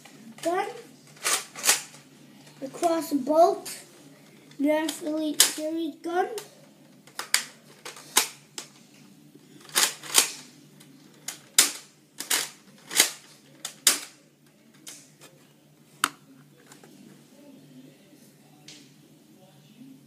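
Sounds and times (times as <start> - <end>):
toy blaster plastic clicks and snaps: 4.8 - 5.6.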